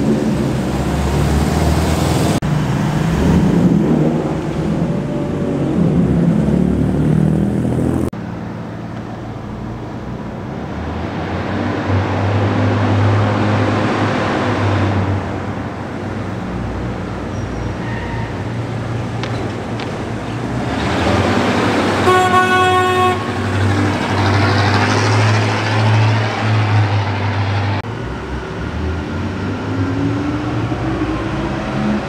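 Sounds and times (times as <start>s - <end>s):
cars driving past: 0.0s - 32.0s
car horn toot: 22.0s - 23.5s.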